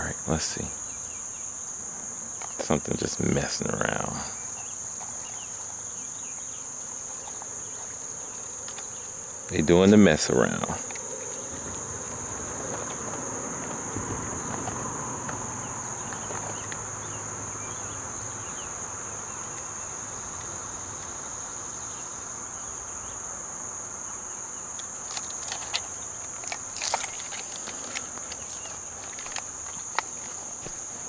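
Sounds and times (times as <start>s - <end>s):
insects buzzing: 0.0s - 31.0s
sharp clicks and rustles: 24.8s - 30.9s.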